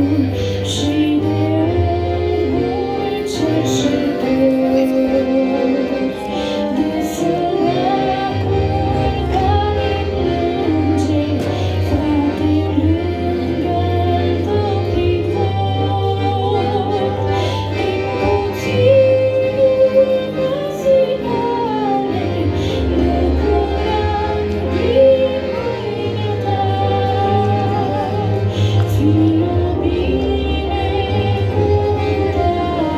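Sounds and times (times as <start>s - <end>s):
sustained instrumental accompaniment: 0.0s - 32.9s
woman singing into a microphone: 0.0s - 32.9s.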